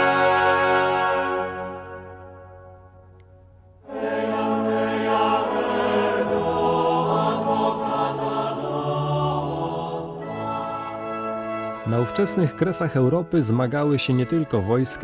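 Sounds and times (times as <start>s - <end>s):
choir singing chant-like notes: 0.0s - 2.3s, 3.8s - 12.4s.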